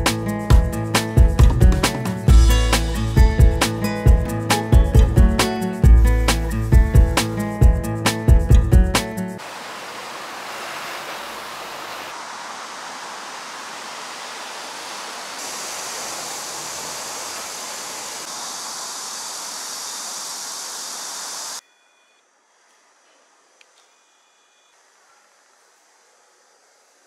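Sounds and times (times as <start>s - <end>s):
street ambience hiss: 9.4s - 21.6s, 22.2s - 27.0s.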